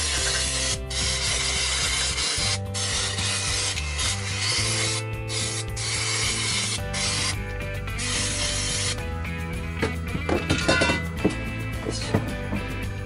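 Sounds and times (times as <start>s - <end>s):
aerosol spray hissing: 4.3s - 7.4s.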